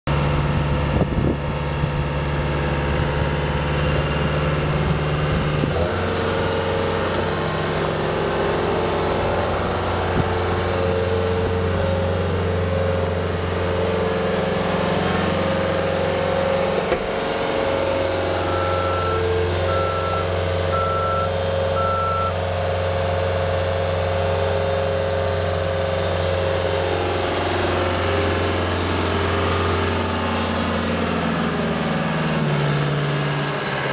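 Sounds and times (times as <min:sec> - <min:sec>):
diesel engine running: 0:00.1 - 0:33.9
backup alarm beeping: 0:18.4 - 0:22.4.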